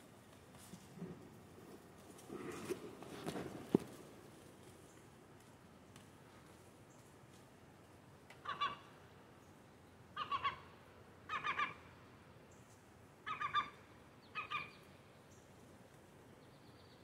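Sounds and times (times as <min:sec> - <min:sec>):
gulls giving harsh calls: 0:08.4 - 0:08.9, 0:10.2 - 0:10.7, 0:11.3 - 0:11.8, 0:13.2 - 0:14.8.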